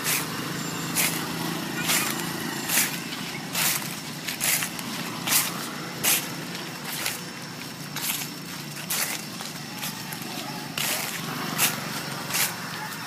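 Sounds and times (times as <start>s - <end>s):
footsteps crunching dry leaves: 0.0s - 13.0s.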